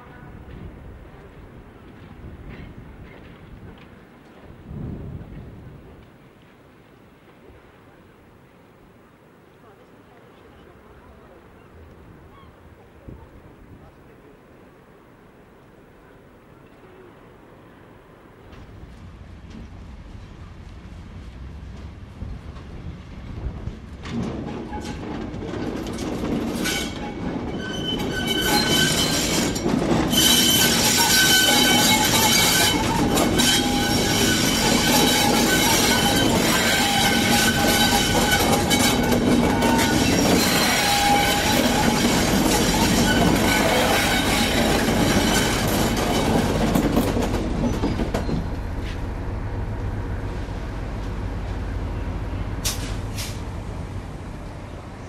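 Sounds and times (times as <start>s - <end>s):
locomotive engines passing: 13.4s - 55.0s
high wheel squeal: 26.6s - 46.6s.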